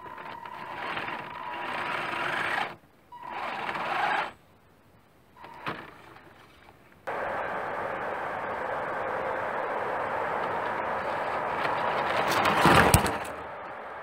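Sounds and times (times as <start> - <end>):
toy car motor whirring: 0.0 - 4.4.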